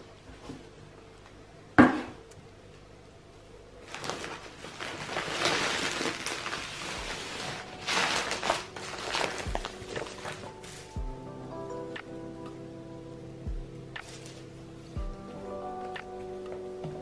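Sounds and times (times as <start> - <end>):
bubble wrap crinkling: 3.8 - 11.0, 14.0 - 14.5.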